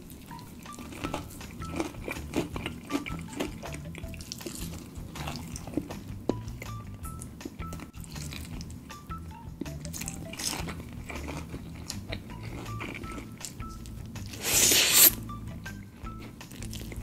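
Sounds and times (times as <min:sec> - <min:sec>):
chewing crispy chicken: 0:00.0 - 0:15.2, 0:16.0 - 0:17.0
quiet background music: 0:00.0 - 0:17.0
loud crunchy bite: 0:01.0 - 0:05.9, 0:14.3 - 0:15.2.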